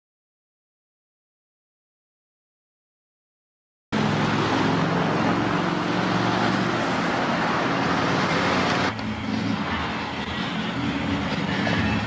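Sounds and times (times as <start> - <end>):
loud vehicle rushing: 4.0 - 12.0
low engine hum: 4.0 - 12.0.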